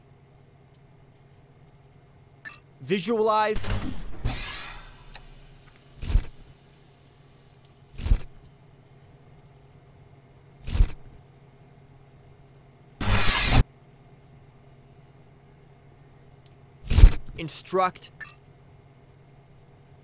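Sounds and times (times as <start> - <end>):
hiss: 4.4 - 8.2.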